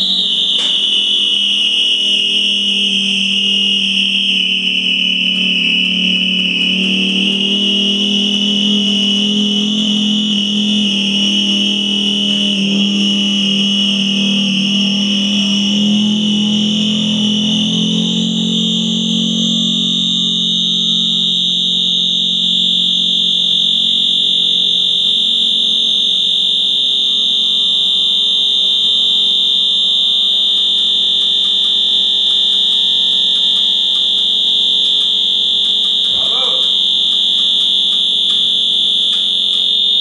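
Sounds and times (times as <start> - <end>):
high-pitched alarm tone: 0.0 - 40.0
low hum: 2.2 - 23.3.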